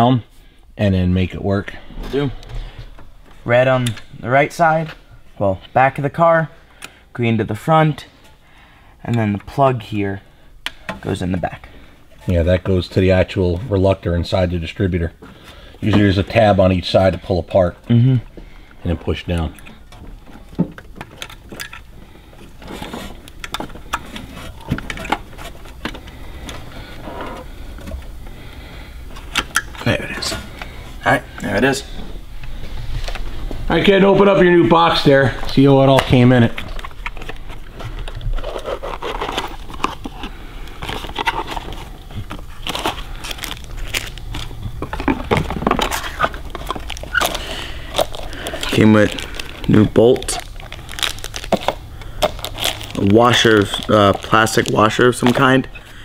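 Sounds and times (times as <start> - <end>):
cardboard and paper crinkling: 18.8 - 27.0, 35.0 - 56.0.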